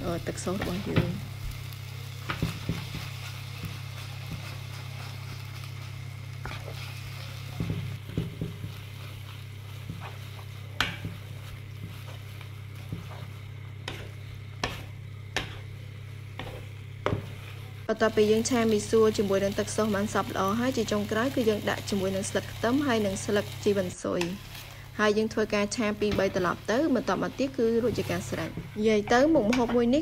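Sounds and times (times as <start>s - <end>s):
food sizzling in a wok: 0.0s - 30.0s
spatula knocking and scraping pan: 2.2s - 5.4s, 7.5s - 17.6s.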